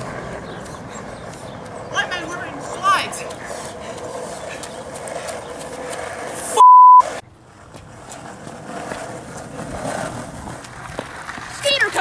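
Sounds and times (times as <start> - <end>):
electronic beep: 6.6 - 7.0.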